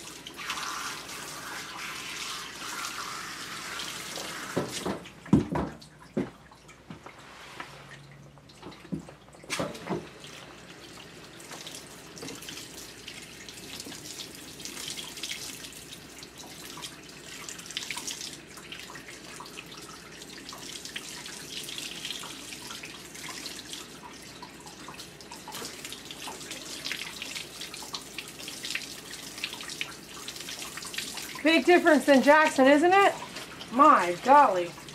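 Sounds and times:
water dripping: 0:10.9 - 0:34.9.

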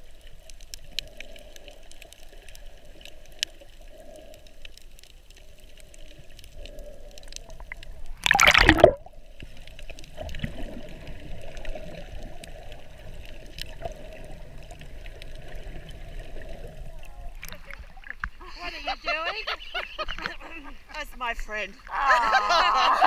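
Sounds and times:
faint clicks underwater: 0:00.0 - 0:18.4
muffled underwater movement: 0:00.0 - 0:20.9
rushing burst of water: 0:07.6 - 0:09.2.

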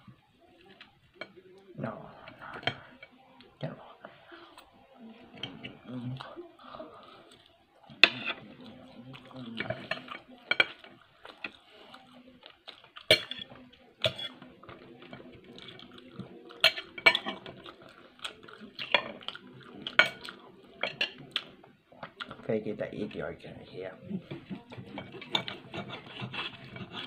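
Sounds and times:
knife and fork clinking on plate: 0:24.9 - 0:27.0.

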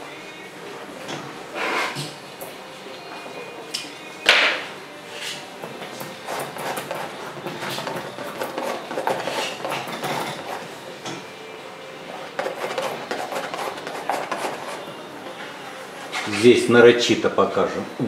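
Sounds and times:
palette knife scraping and tapping: 0:06.0 - 0:11.2, 0:12.2 - 0:15.0.

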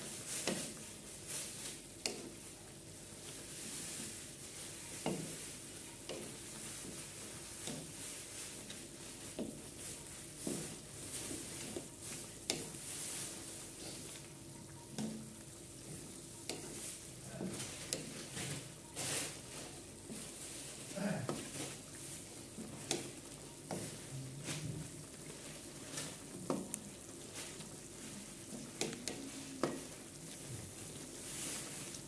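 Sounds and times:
wooden spatula scraping a wok: 0:00.2 - 0:00.8, 0:03.1 - 0:14.3, 0:15.0 - 0:32.0
meat sizzling in a wok: 0:15.0 - 0:24.1.

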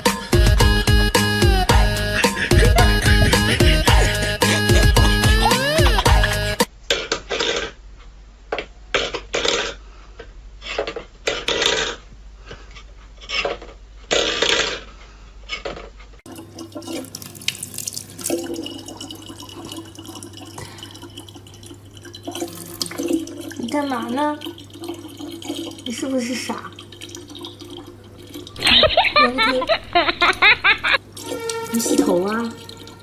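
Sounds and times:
tap running water: 0:01.7 - 0:06.7, 0:16.3 - 0:33.0.

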